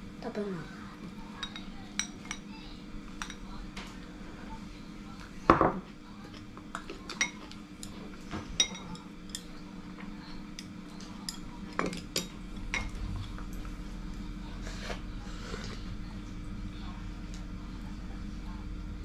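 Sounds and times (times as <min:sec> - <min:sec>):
ceramic tableware knocking on table: 0:05.5 - 0:05.8.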